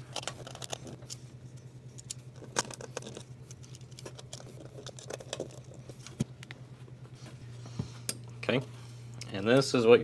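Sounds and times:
clicks and rattles of handling: 0.0s - 6.6s
steady low hum: 0.0s - 10.0s.

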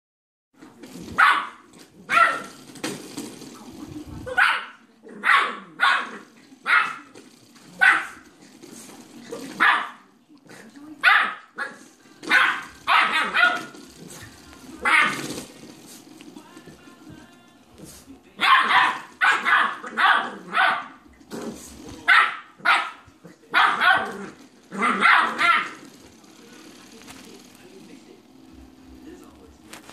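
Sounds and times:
puppy barking: 1.2s - 2.6s, 4.3s - 7.1s, 7.7s - 8.2s, 9.5s - 10.0s, 11.0s - 13.8s, 14.8s - 15.3s, 18.4s - 21.0s, 22.0s - 25.8s.

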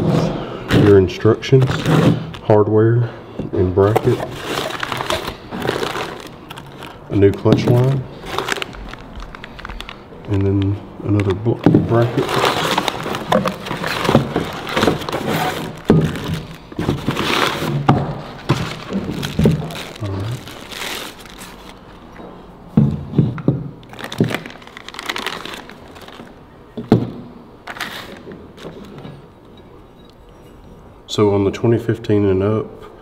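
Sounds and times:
paper and plastic bags rustling: 3.7s - 22.1s, 23.8s - 26.4s, 27.6s - 29.2s.

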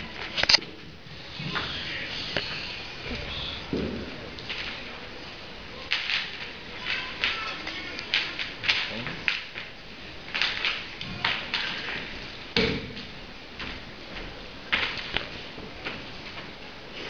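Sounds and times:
footsteps on wooden floor: 13.5s - 16.6s.

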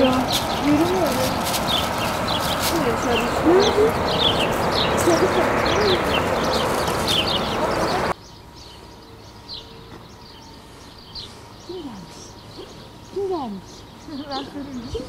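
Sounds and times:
small birds chirping: 0.0s - 15.0s
loud rushing noise: 0.1s - 8.1s.

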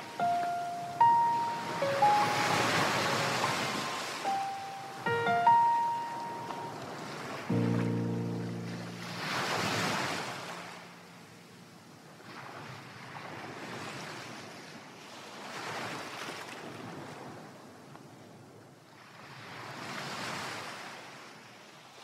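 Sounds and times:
ocean waves washing: 0.0s - 14.4s.

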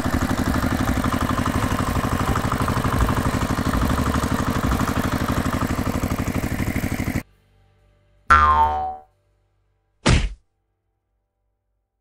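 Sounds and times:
engine idling: 0.0s - 7.2s.

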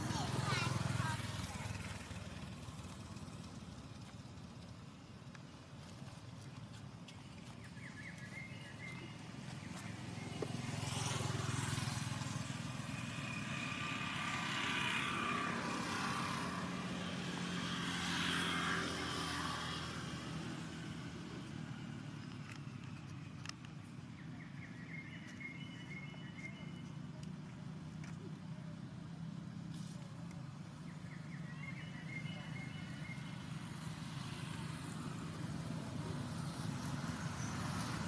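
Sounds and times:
vehicle passing by: 0.0s - 4.0s, 7.7s - 22.9s, 28.8s - 38.0s.

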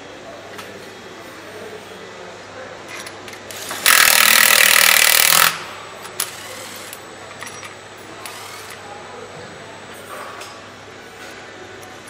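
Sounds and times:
power nutrunner whirring: 3.5s - 5.6s.

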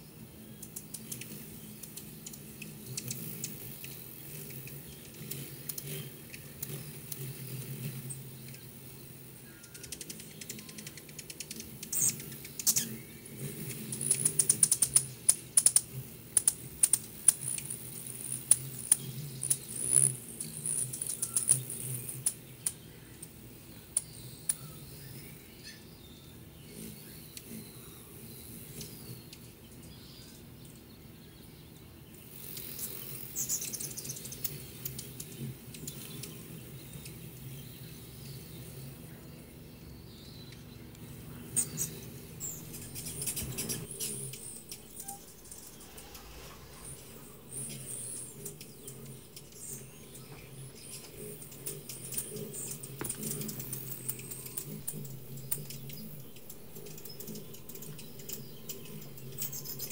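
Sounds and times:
hummingbird chips and clicks: 0.3s - 25.7s, 26.7s - 30.8s, 32.1s - 39.1s, 40.5s - 59.9s
high squeaky bird calls: 41.2s - 59.9s.

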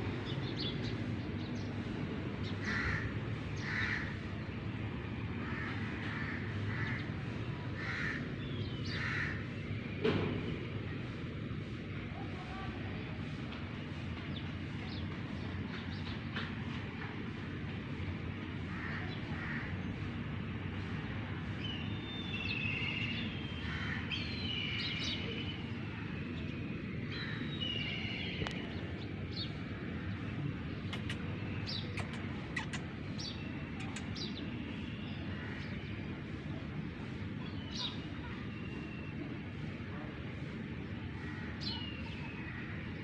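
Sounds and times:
small birds chirping: 21.5s - 39.2s.

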